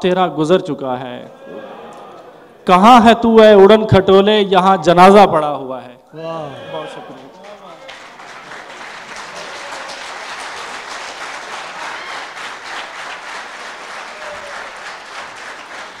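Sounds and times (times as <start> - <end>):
audience applauding: 6.8 - 16.0.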